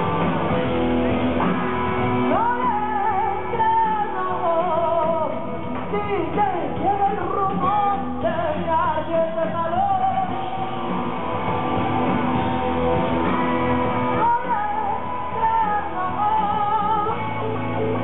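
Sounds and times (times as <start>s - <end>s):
live rock song: 0.0s - 18.0s
woman singing: 2.3s - 10.8s, 14.1s - 18.0s.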